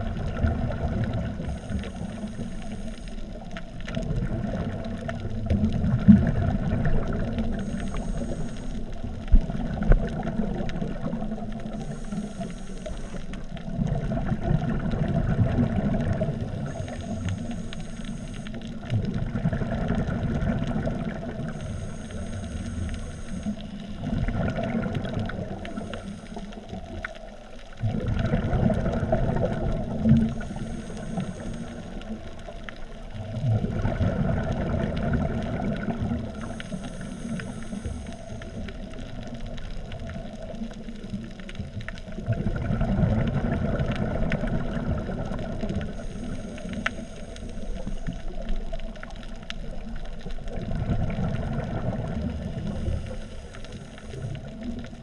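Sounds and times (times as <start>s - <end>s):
exhaled air bubbling: 0.0s - 55.0s
regulator inhale hiss: 1.2s - 3.9s, 7.3s - 9.4s, 11.6s - 13.8s, 15.7s - 19.0s, 20.8s - 27.5s, 29.4s - 33.2s, 35.7s - 39.3s, 45.6s - 50.6s, 52.3s - 55.0s.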